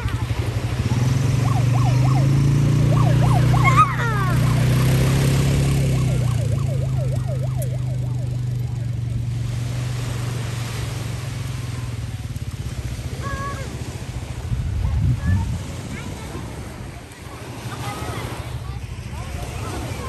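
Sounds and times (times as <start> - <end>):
quad bike engine droning: 0.0 - 16.8
warbling siren tone: 0.8 - 9.6.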